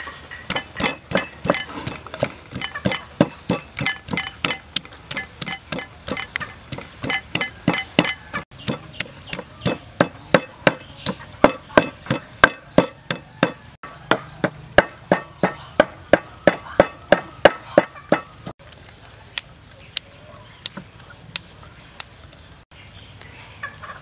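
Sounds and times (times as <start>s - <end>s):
pestle pounding in mortar: 0.5s - 18.5s.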